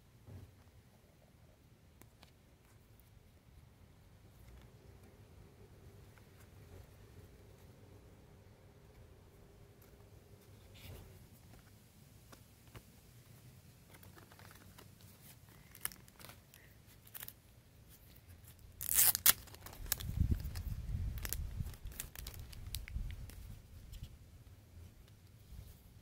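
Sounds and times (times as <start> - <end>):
plastic wrapping crinkling and tearing: 13.8 - 23.6.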